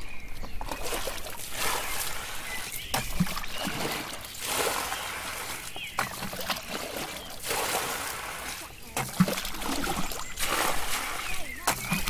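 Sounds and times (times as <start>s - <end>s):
muddy water sloshing and splashing: 0.0s - 12.0s.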